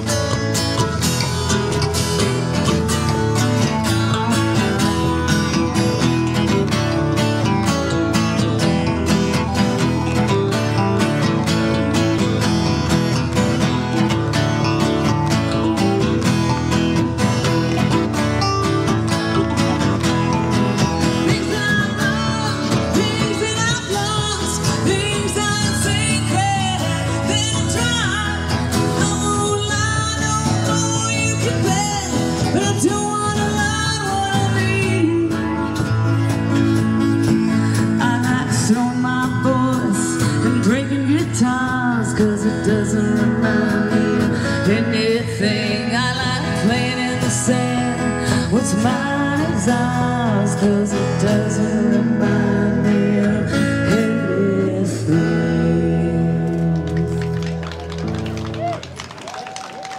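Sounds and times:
acoustic guitars strumming: 0:00.0 - 0:58.6
person singing: 0:21.0 - 0:36.2, 0:37.3 - 0:57.0.

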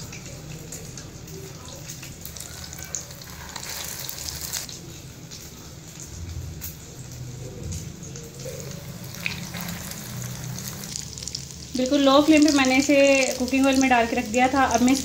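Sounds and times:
patties sizzling in hot oil: 0:00.0 - 0:15.0.

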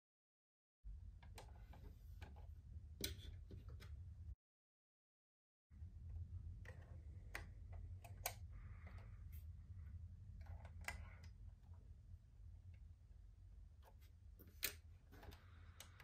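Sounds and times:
low steady hum: 0:05.7 - 0:16.0.

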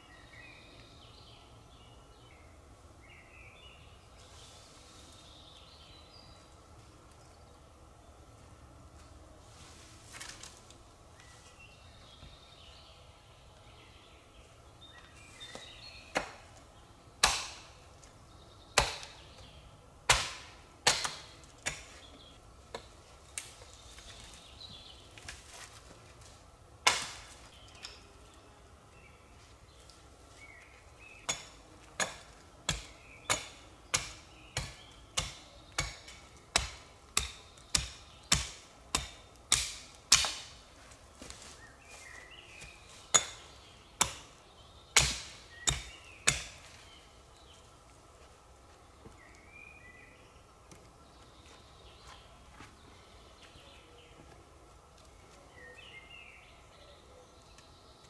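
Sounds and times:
hatchet chopping wood: 0:15.5 - 0:16.4, 0:17.2 - 0:17.8, 0:18.8 - 0:19.2, 0:20.1 - 0:22.0, 0:26.8 - 0:27.3, 0:31.3 - 0:40.6, 0:43.1 - 0:43.4, 0:44.0 - 0:44.3, 0:44.9 - 0:46.6.

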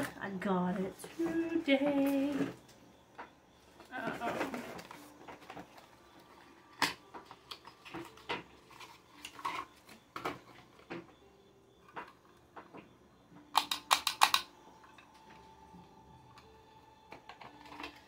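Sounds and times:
sharp plastic clicks: 0:13.5 - 0:14.5.

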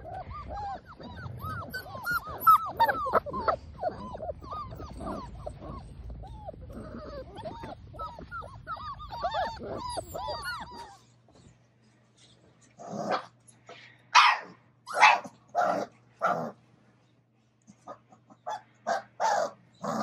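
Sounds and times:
puppies whining and yipping: 0:00.0 - 0:11.6.

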